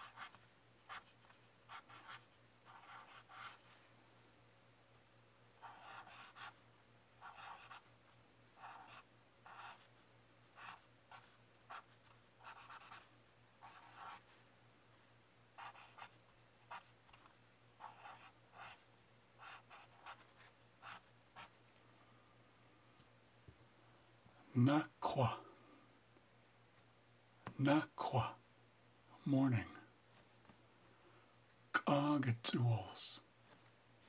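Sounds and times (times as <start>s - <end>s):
marker scratching on paper: 0.0s - 3.7s, 5.6s - 6.6s, 7.2s - 7.9s, 8.6s - 9.9s, 10.6s - 14.4s, 15.6s - 18.8s, 19.4s - 21.5s.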